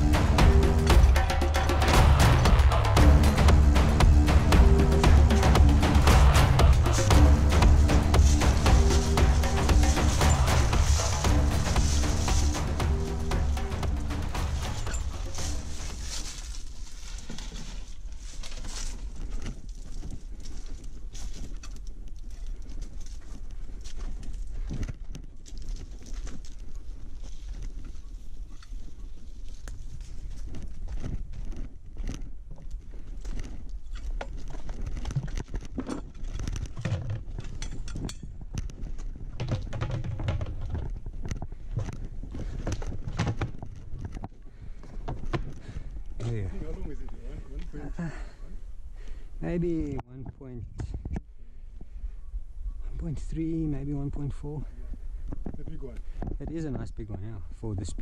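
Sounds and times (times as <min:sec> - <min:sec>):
footsteps on dry leaves: 0:02.8 - 0:36.6.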